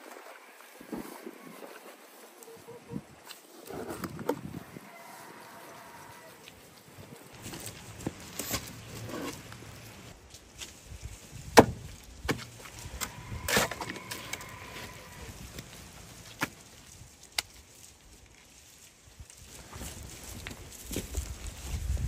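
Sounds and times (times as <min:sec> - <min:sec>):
knocks and thuds of clay: 0:11.5 - 0:12.6.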